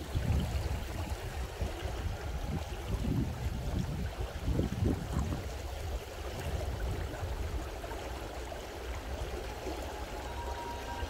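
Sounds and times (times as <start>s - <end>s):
stream water flowing: 0.0s - 11.0s.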